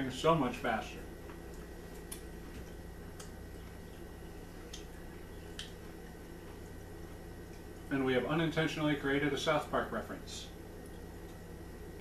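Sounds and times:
low room hum: 0.0s - 12.0s
fingers being licked: 1.3s - 6.8s.

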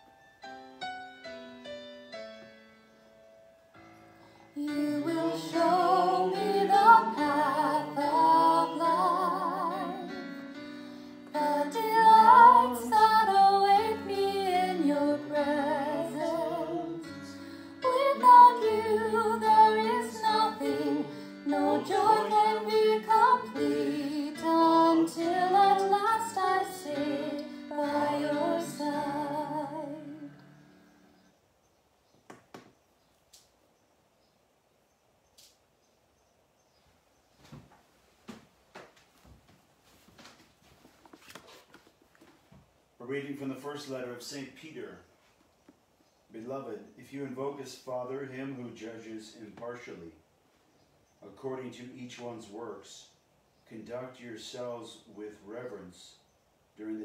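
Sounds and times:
piano accompaniment: 0.0s - 31.3s
woman singing with vibrato: 4.6s - 10.3s, 11.3s - 30.4s.

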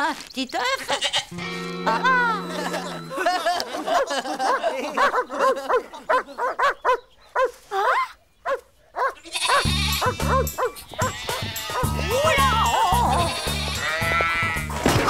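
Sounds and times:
cartoon dog barking: 3.9s - 12.5s.

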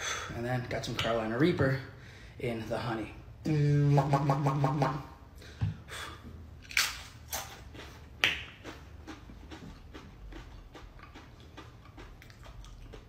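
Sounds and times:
man humming: 3.4s - 5.2s.

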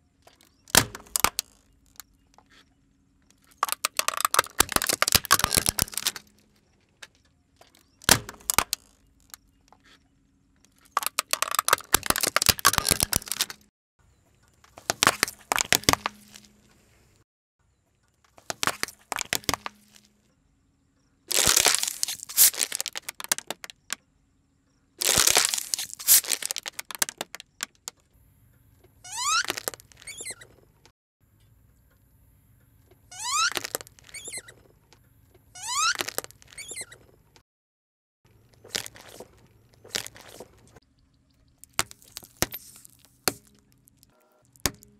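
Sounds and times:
plastic bottle collapsing: 0.6s - 2.0s, 3.6s - 6.4s, 7.8s - 9.4s, 10.8s - 13.7s, 14.7s - 16.6s, 18.3s - 20.1s, 21.3s - 24.0s, 25.0s - 27.9s, 29.1s - 30.4s, 33.1s - 34.5s, 35.6s - 37.0s, 38.5s - 40.8s, 41.6s - 43.7s
tyre crushing objects cracking: 0.6s - 2.0s, 3.6s - 6.4s, 8.0s - 9.4s, 10.9s - 13.7s, 14.7s - 16.7s, 18.3s - 20.1s, 21.3s - 24.0s, 25.0s - 27.9s, 29.2s - 30.4s, 33.2s - 34.4s, 35.7s - 36.8s, 38.5s - 40.8s, 41.6s - 44.9s
rubber toy ball squeaking: 0.6s - 2.6s, 3.4s - 6.4s, 7.8s - 10.0s, 10.7s - 13.7s, 14.8s - 16.5s, 18.4s - 20.0s, 21.3s - 24.0s, 25.0s - 27.5s, 29.0s - 30.6s, 33.0s - 34.7s, 35.5s - 37.2s, 38.5s - 40.8s.

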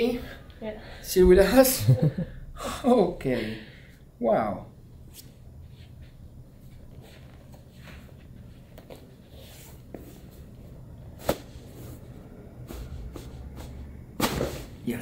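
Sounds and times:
low room hum: 0.0s - 15.0s
rustling of hands and clothing: 5.1s - 13.8s.

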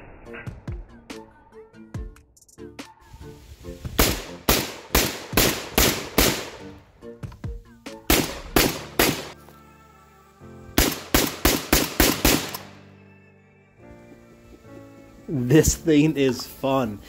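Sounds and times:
shotgun fired rapidly: 4.0s - 6.7s, 8.1s - 9.4s, 10.8s - 12.7s.

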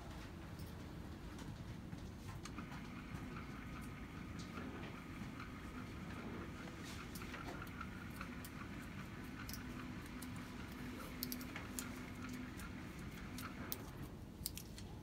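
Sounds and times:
lead wires unsnapping clicks: 9.4s - 15.0s.

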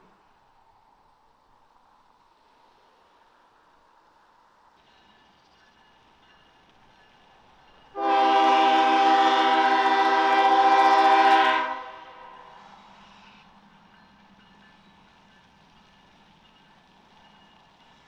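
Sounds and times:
locomotive air horn: 8.0s - 12.6s.

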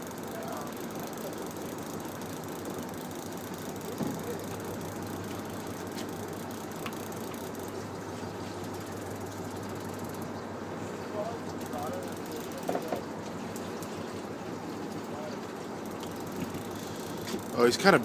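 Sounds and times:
faint clicks: 0.0s - 7.9s, 11.4s - 14.0s, 14.9s - 17.6s
boat engine humming: 0.0s - 18.0s
wind and water hiss: 0.0s - 18.0s.

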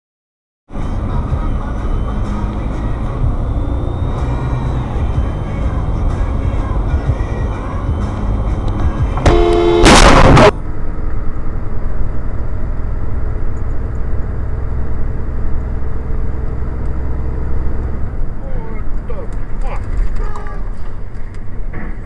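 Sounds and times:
vehicle driving rumble: 0.7s - 22.0s
vehicle horn: 9.1s - 10.5s
loud distorted noise blast: 9.2s - 10.6s.

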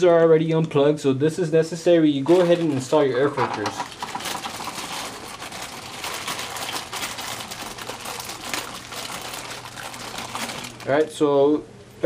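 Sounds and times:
printer mechanical rattle: 2.3s - 11.1s.

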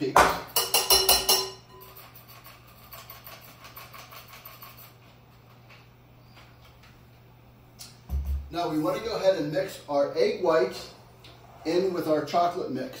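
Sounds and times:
mixer beaters clinking on glass bowl: 0.5s - 1.9s.

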